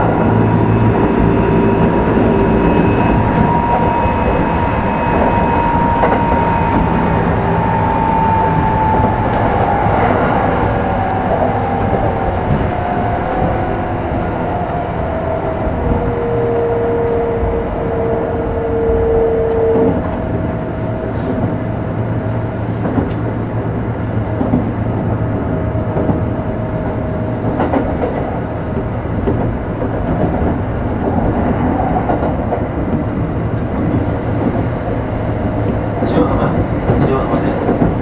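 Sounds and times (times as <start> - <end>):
train wheels rumbling on rail: 0.0 - 38.0
faint click at rail joints: 22.7 - 23.4.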